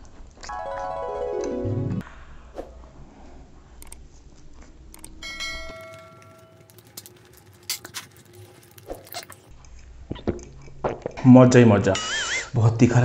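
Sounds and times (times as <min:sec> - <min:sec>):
notification bell chime: 0:00.5 - 0:02.0
faint eating sounds: 0:02.8 - 0:11.3
mouse clicks: 0:03.8 - 0:04.0
sharp clicks: 0:03.8 - 0:04.0, 0:04.9 - 0:07.2.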